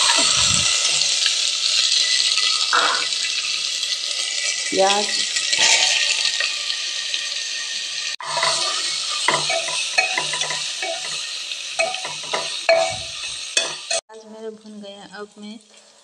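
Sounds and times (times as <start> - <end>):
onions sizzling in hot oil: 0.0 - 16.0
spatula scraping and knocking a pot: 8.2 - 14.0.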